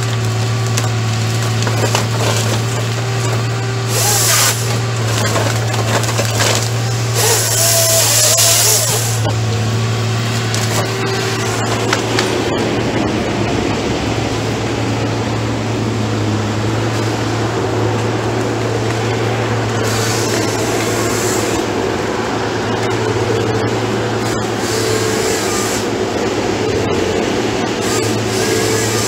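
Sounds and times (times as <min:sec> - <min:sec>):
diesel engine running under load: 0:00.0 - 0:29.0
hiss: 0:03.9 - 0:04.8, 0:07.0 - 0:09.2.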